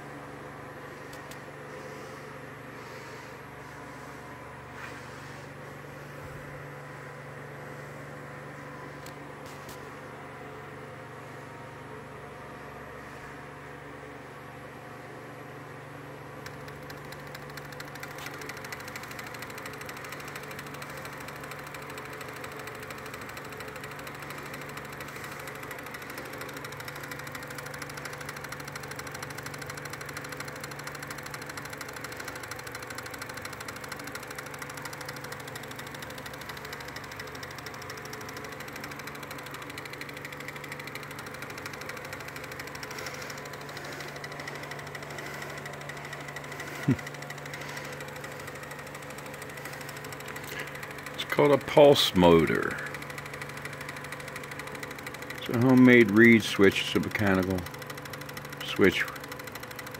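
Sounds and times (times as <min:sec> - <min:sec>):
low motor hum: 0:00.0 - 0:59.9
reed switch clicking rapidly: 0:16.4 - 0:59.9.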